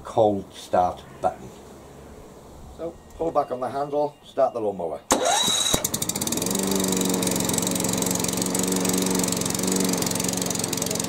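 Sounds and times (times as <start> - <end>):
lawnmower engine running: 5.1 - 11.0.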